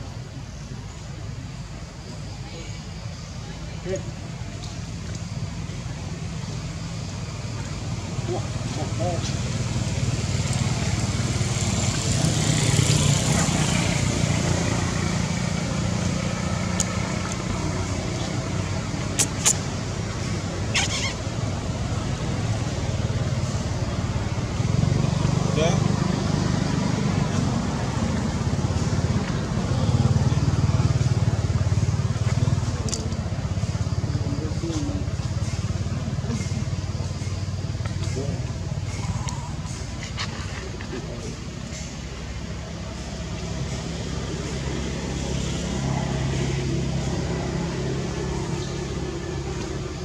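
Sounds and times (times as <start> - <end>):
vehicle engine rumbling: 0.0 - 50.0
sharp clicks: 19.0 - 19.7.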